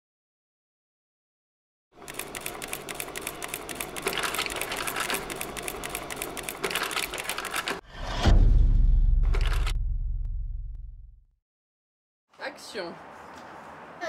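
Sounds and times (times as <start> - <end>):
rapid clatter of clicks: 2.0 - 7.8.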